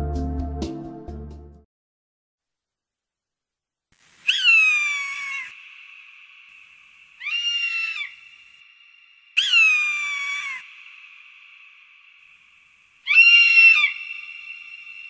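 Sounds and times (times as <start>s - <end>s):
high drawn-out animal calls: 4.3s - 15.0s.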